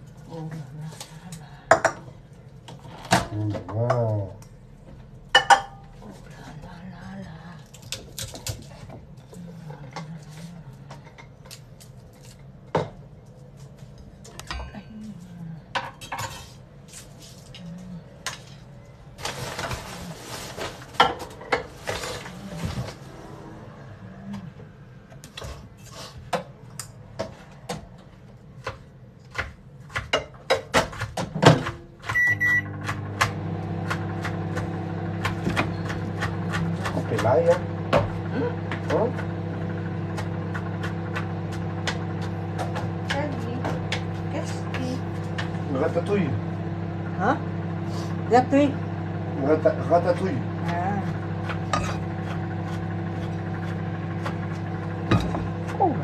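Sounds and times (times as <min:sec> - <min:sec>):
appliance humming: 0:31.5 - 0:56.0
short beep: 0:32.2 - 0:32.7.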